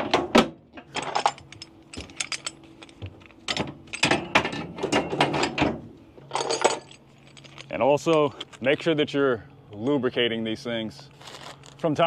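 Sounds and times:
low steady hum: 0:00.0 - 0:12.0
metal chain binders clanking: 0:00.8 - 0:09.0.

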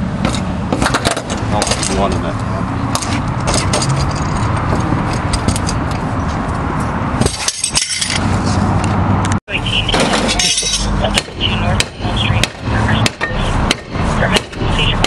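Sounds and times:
metal clinks and scrapes: 0:03.0 - 0:06.1, 0:07.2 - 0:08.6, 0:10.0 - 0:11.0.

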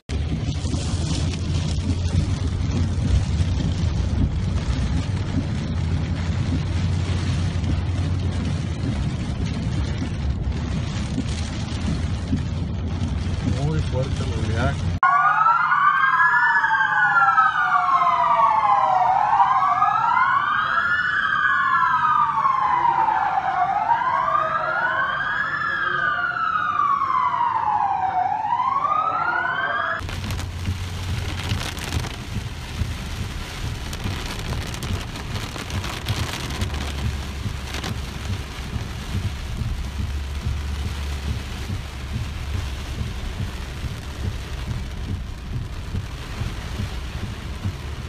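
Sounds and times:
heavy rain on a car: 0:00.0 - 0:15.0, 0:30.0 - 0:48.0
low rumble: 0:00.1 - 0:15.0, 0:30.0 - 0:48.0
wind noise on a moving car: 0:00.1 - 0:15.0, 0:30.0 - 0:48.0
sirens wailing: 0:15.0 - 0:48.0.

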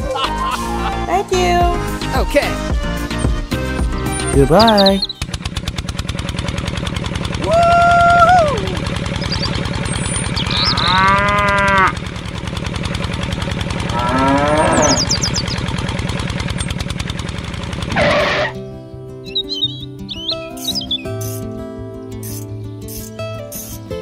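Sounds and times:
tractor engine chugging: 0:01.4 - 0:21.4
cows mooing: 0:10.4 - 0:12.1, 0:13.8 - 0:15.4, 0:17.9 - 0:18.6.

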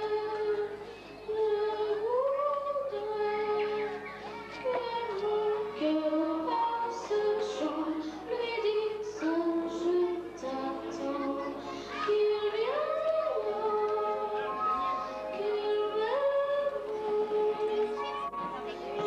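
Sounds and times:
girl singing into a microphone: 0:00.0 - 0:18.2.

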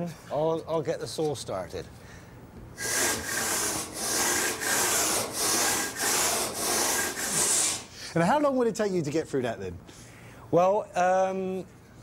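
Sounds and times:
stone saw scraping: 0:02.8 - 0:07.9.

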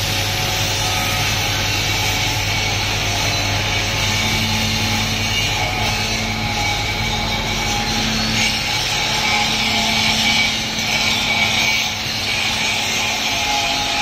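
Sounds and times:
power tools on steel: 0:00.0 - 0:14.0.

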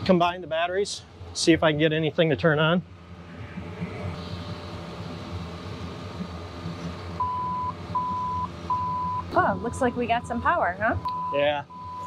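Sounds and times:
low engine hum: 0:00.0 - 0:12.0
electronic beeps: 0:07.2 - 0:12.0.

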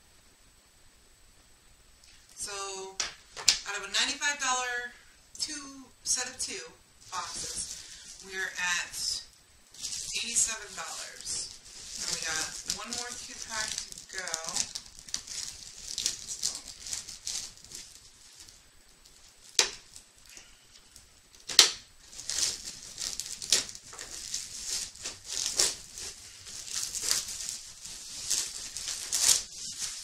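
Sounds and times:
plastic wrapping crinkling: 0:07.0 - 0:30.0.

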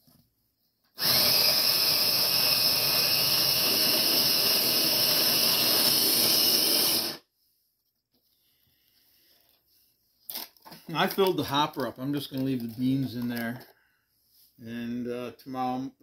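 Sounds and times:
electric coffee grinder whirring: 0:01.0 - 0:07.2.

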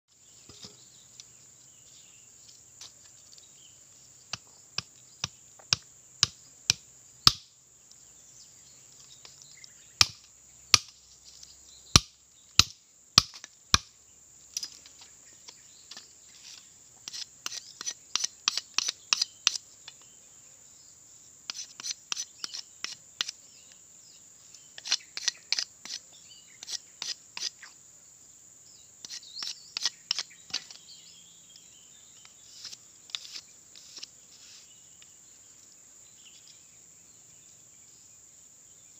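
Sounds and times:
machete chopping wood: 0:04.3 - 0:07.5, 0:10.0 - 0:11.0, 0:12.0 - 0:13.9.

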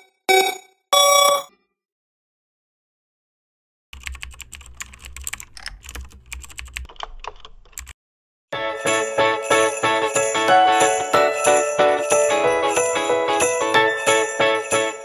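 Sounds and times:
bright music with jingle bells: 0:08.6 - 0:15.0.

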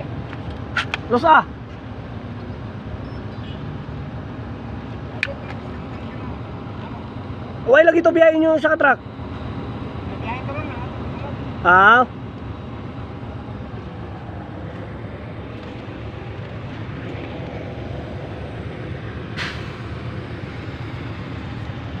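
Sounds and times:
vehicle engines rumbling: 0:00.0 - 0:22.0
short hiss: 0:19.4 - 0:19.8.

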